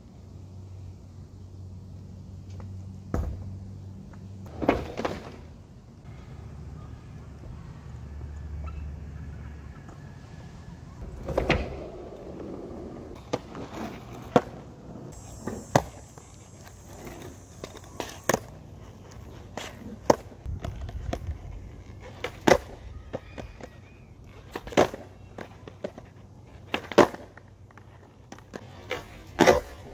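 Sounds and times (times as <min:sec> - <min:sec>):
skateboard wheels rumbling: 0:00.7 - 0:29.9
skateboard clacking on concrete: 0:11.1 - 0:29.9.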